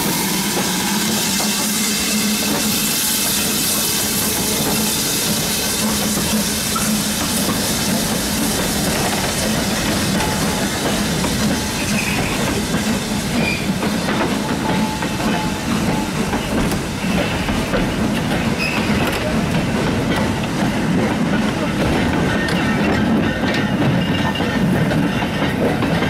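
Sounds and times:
train wheels rolling over rails: 0.0s - 26.0s
wheel squeals: 11.8s - 12.5s, 13.4s - 13.8s, 18.6s - 19.2s.

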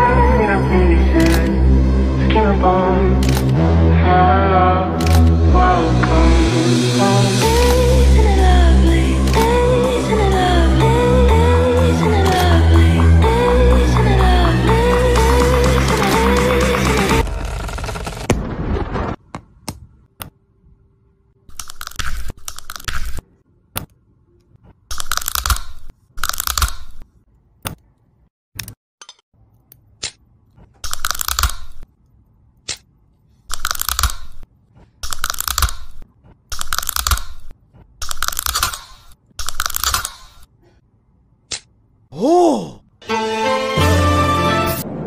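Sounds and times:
small tweezer clicks: 30.8s - 31.9s, 33.5s - 40.5s.

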